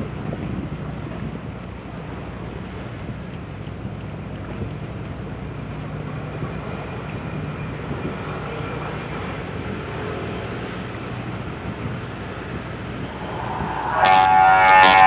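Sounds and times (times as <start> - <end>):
large ship passing: 4.3 - 15.0.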